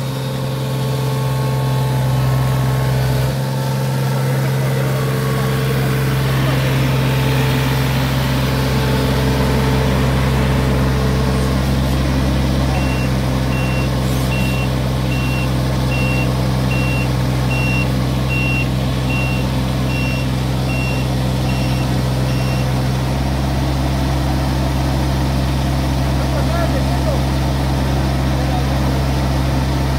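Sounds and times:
excavator diesel engine running: 0.0 - 29.9
high-pitched beeping alarm: 12.7 - 22.7.

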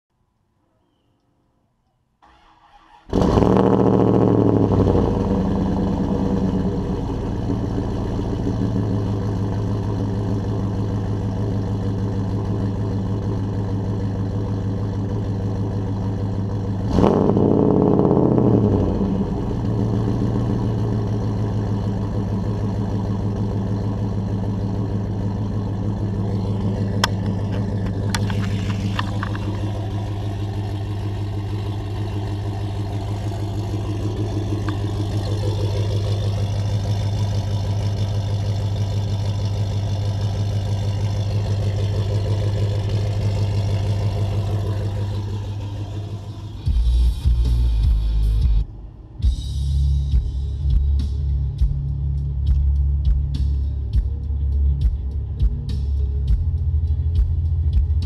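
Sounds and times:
engine starting and idling: 2.2 - 48.0.

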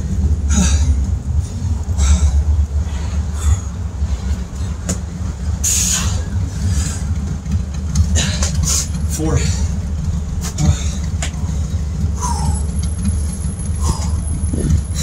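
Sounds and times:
wind buffeting microphone: 9.7 - 15.0.

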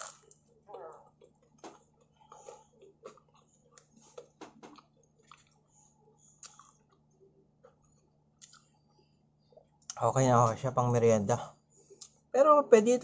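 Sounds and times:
person chewing crunchy food: 0.0 - 5.7, 6.3 - 7.1, 8.4 - 8.8.

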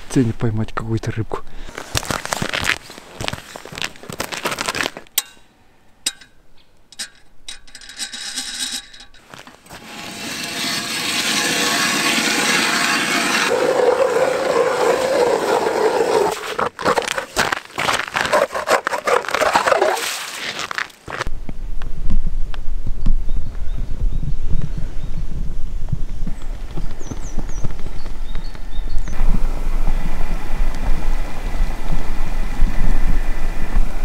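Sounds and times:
footsteps on ice: 1.7 - 5.2, 16.5 - 21.3
ice auger drilling into ice: 7.7 - 20.8.

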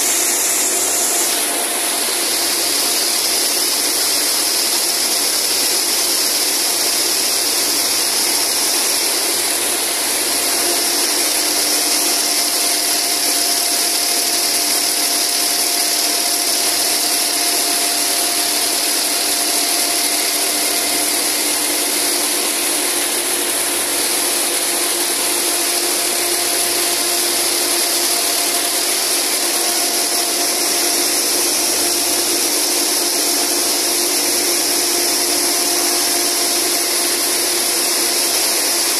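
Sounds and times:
braiding machines whirring: 0.0 - 38.9.

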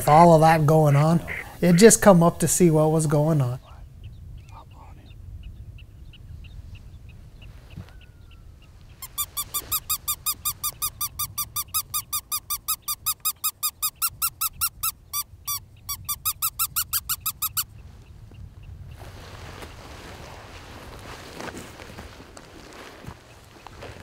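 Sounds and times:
high squeaks of predator call: 9.0 - 17.7.

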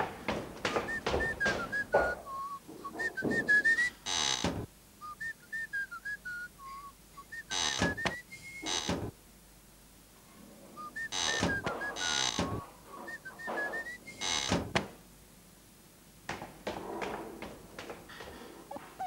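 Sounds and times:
person whistling a tune: 0.9 - 4.0, 5.0 - 8.7, 10.8 - 14.2.

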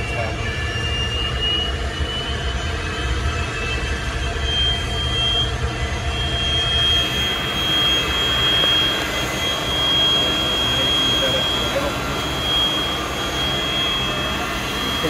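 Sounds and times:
jet engine starting whine: 0.0 - 15.0.

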